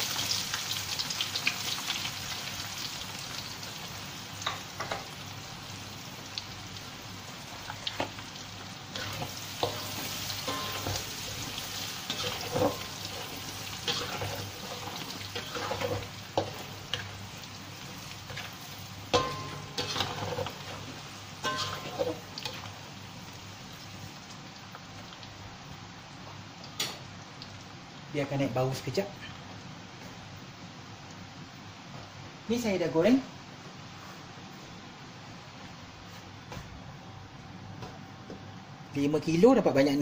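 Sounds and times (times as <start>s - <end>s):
garlic sizzling in hot oil: 0.0s - 30.5s
spatula knocking against wok: 19.2s - 19.8s.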